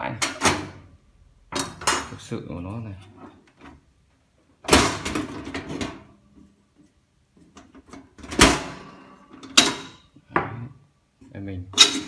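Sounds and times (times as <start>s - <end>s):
metal parts clattering and scraping: 11.8s - 12.0s.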